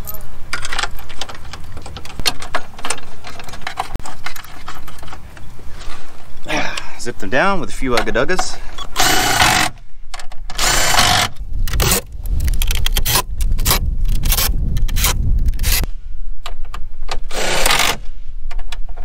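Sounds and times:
cordless driver whirring: 8.9s - 9.8s.

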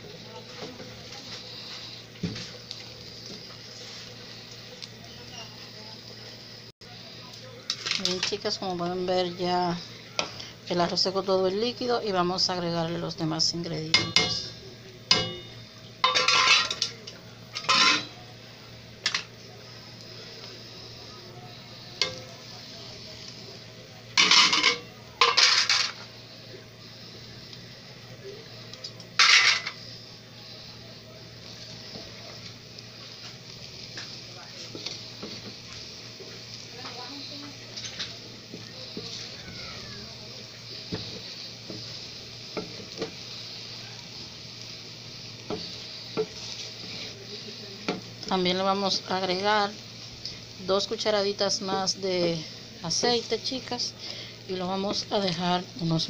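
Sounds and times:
steady sizzle: 0.0s - 56.0s
wooden spoon stirring rice: 31.4s - 50.5s.

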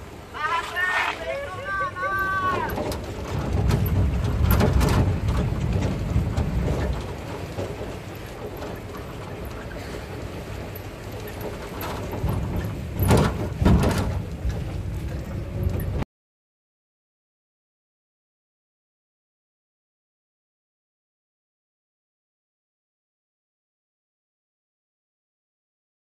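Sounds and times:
vehicle engine and road noise: 0.0s - 16.1s
truck bed knocking: 2.4s - 9.8s, 11.4s - 15.0s.

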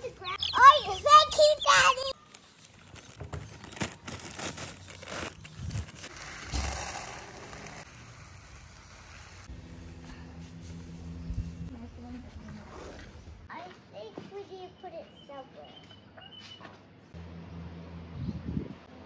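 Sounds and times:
plastic bag crinkling: 2.2s - 7.8s
grain pouring into plastic tub: 6.1s - 9.5s.

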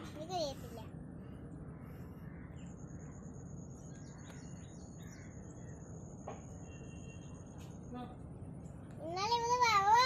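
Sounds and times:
bird chirps: 1.2s - 9.0s.

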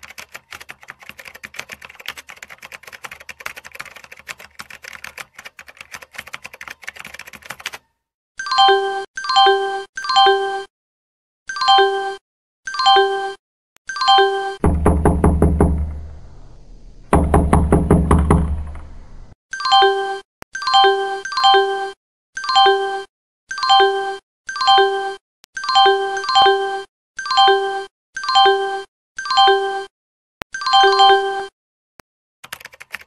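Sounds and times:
low thud: 14.6s - 19.3s
fast electronic knocks: 14.6s - 19.4s.

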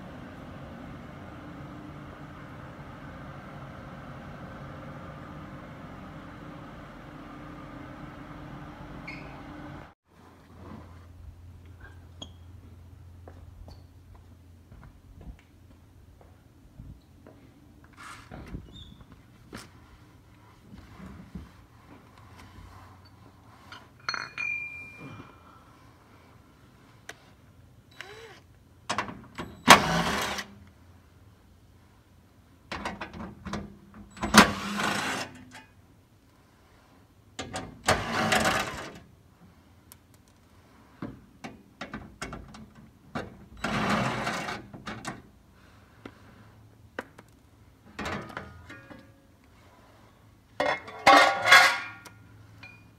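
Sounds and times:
tools clattering: 23.7s - 25.2s, 50.6s - 52.8s.

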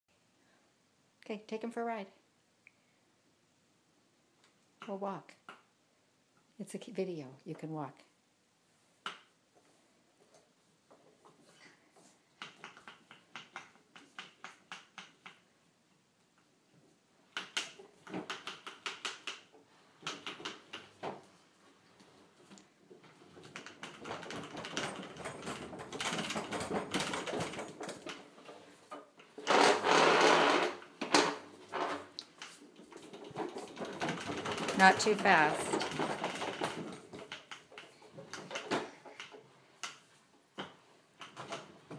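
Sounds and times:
wheels rattling over tile floor: 10.3s - 15.4s, 16.8s - 41.9s.

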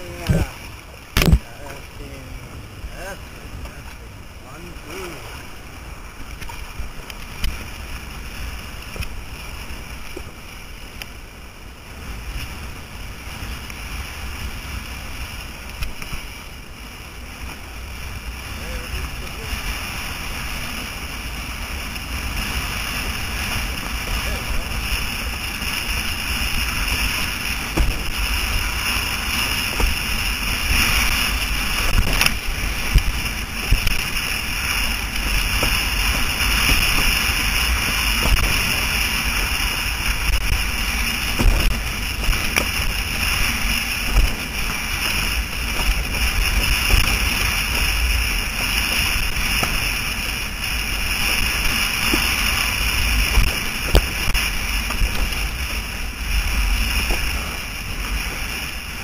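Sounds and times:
wind buffeting microphone: 0.0s - 59.0s
board knocks and splashes: 27.6s - 28.7s, 29.6s - 34.2s, 35.4s - 39.5s, 41.2s - 50.0s, 51.3s - 55.8s.

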